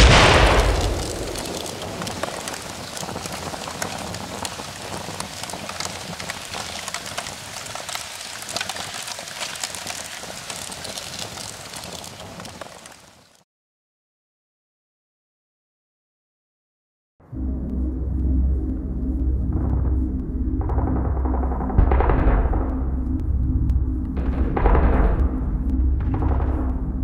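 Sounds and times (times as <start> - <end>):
explosion: 0.0 - 5.1
fire crackling and popping: 0.0 - 13.4.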